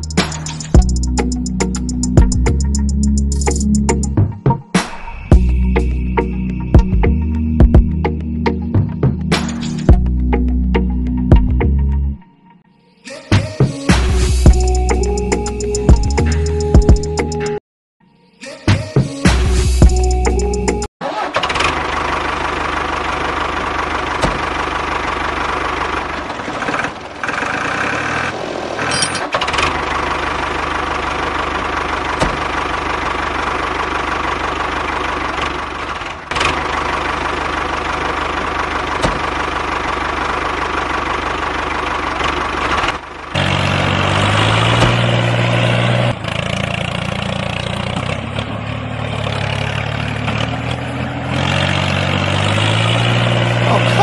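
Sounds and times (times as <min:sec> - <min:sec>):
tractor engine running: 0:00.0 - 0:04.2, 0:19.8 - 0:54.0.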